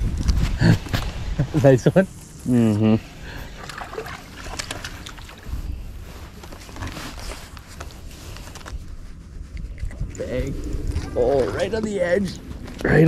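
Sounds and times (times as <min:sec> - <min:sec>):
water lapping against boat: 0:03.3 - 0:05.7
fish splashing: 0:03.4 - 0:05.6.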